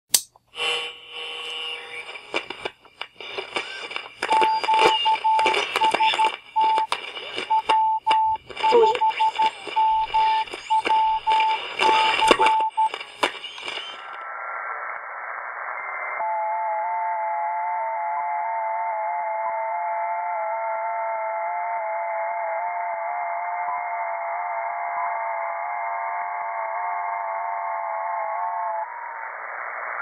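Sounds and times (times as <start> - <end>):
crackling static: 0.5 - 16.8, 25.3 - 30.0
radio band hiss: 0.6 - 16.2
morse code beeps: 3.2 - 14.0
digital signal tones hopping pitch: 3.2 - 14.2.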